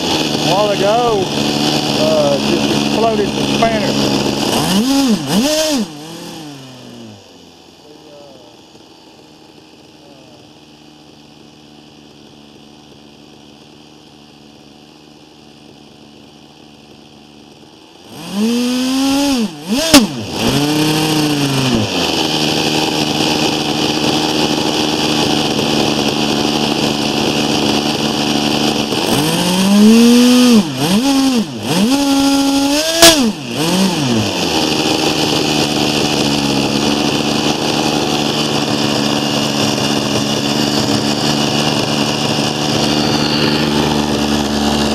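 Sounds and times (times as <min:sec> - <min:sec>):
model engine screaming: 0:00.0 - 0:08.8, 0:18.0 - 0:44.9.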